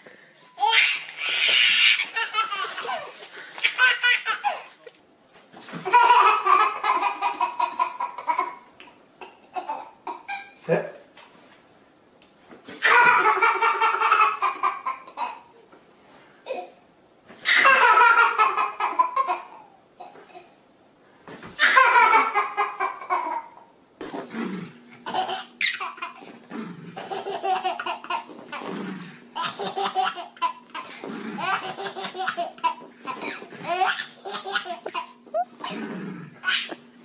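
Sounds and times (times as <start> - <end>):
baby laughing: 0.6 - 4.9, 5.8 - 10.6, 12.8 - 15.5, 17.4 - 19.7, 21.6 - 23.6, 25.0 - 26.3, 27.0 - 28.7, 29.4 - 35.8, 36.4 - 36.9.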